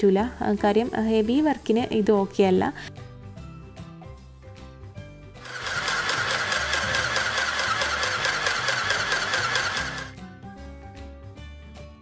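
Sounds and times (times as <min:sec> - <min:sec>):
electric sewing machine stitching: 0:05.4 - 0:10.2.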